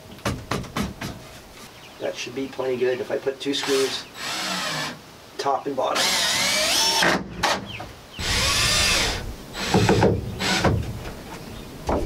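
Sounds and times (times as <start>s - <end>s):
sharp knocks: 0.2s - 1.2s, 9.6s - 11.2s
cordless drill driving screws: 3.6s - 5.0s, 6.0s - 7.6s, 8.2s - 10.7s.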